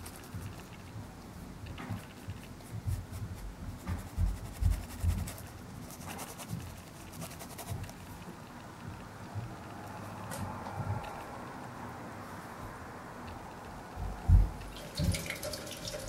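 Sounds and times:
paintbrush scratching on fabric: 0:00.0 - 0:01.0, 0:01.9 - 0:08.2
dull low thumps: 0:02.7 - 0:05.4, 0:14.0 - 0:14.7.

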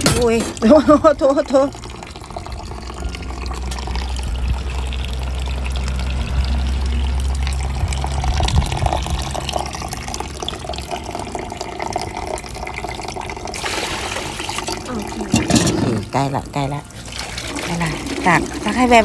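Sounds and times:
tap water running into sink: 0:00.0 - 0:19.0
steady low rumble: 0:01.8 - 0:10.9.

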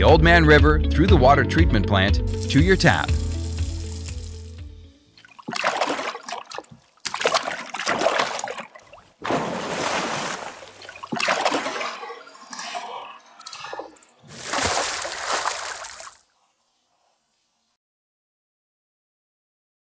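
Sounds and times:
water splashing: 0:02.3 - 0:04.6, 0:05.2 - 0:16.3.

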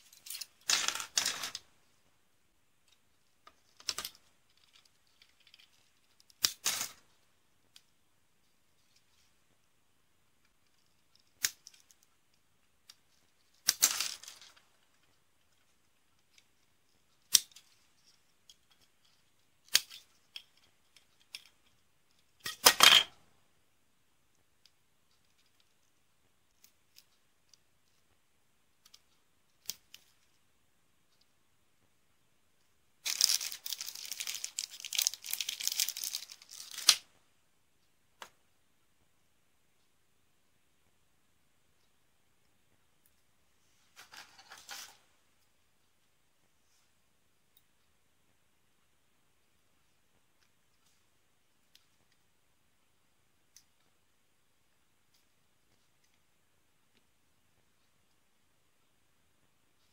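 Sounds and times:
plastic bag crinkling: 0:33.0 - 0:37.0
plastic rattling: 0:33.0 - 0:37.0.

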